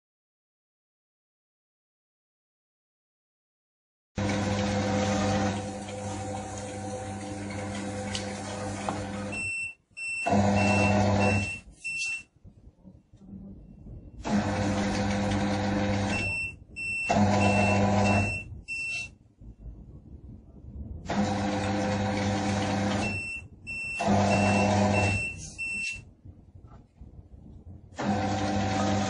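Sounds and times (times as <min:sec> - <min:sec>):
conveyor humming: 0:04.2 - 0:29.0
short high beeps: 0:09.3 - 0:12.3, 0:16.1 - 0:19.1, 0:23.0 - 0:26.0.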